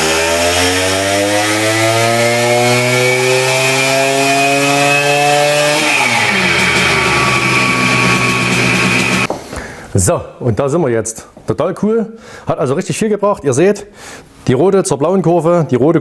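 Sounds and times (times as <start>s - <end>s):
two-stroke moped engine revving: 0.0s - 9.3s.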